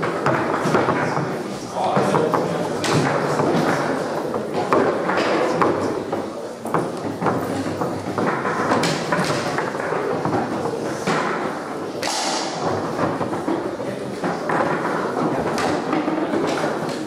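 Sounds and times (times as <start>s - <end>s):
busy hall din: 0.0s - 17.0s.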